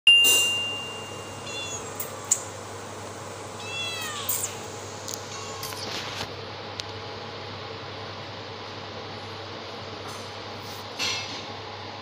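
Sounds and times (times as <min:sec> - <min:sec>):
high steady tone: 0:00.1 - 0:02.1
cat meowing: 0:01.4 - 0:02.4, 0:03.6 - 0:06.0.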